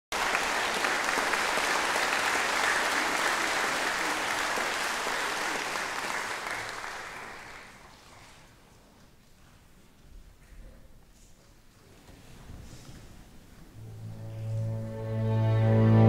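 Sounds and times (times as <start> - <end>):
audience applauding: 0.1 - 8.5.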